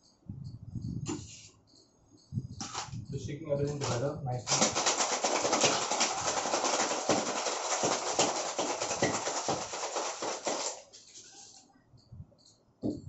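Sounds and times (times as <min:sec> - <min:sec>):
ice rattling in cocktail shaker: 0:03.8 - 0:11.5.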